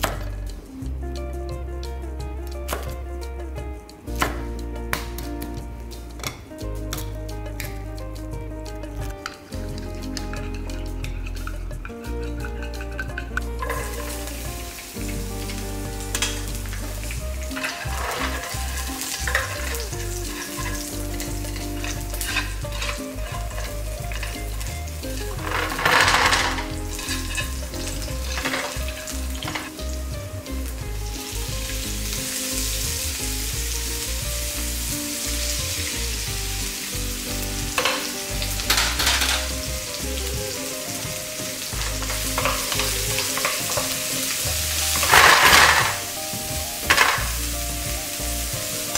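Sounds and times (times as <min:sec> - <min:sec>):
food sizzling in hot oil: 0:01.9 - 0:48.9
utensils knocking against pan: 0:09.0 - 0:30.1, 0:37.7 - 0:40.0, 0:40.6 - 0:47.4.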